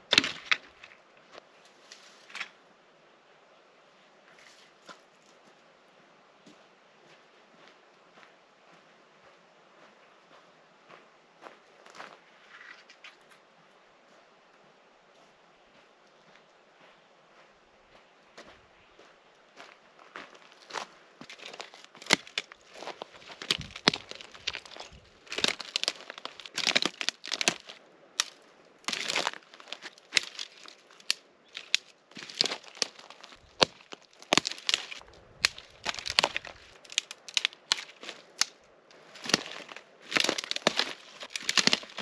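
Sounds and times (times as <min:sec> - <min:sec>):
dry branches snapping: 0:00.0 - 0:01.0, 0:21.3 - 0:42.0.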